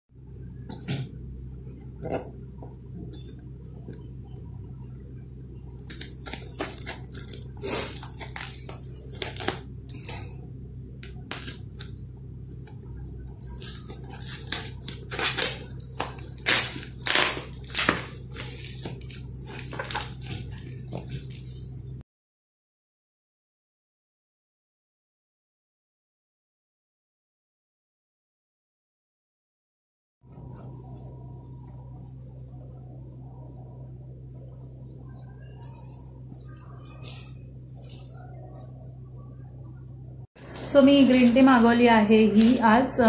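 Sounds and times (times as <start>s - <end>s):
steady low hum: 0.1s - 22.0s, 30.3s - 43.0s
plastic wrap and tape crinkling: 5.8s - 10.3s, 13.4s - 21.7s, 35.6s - 38.7s.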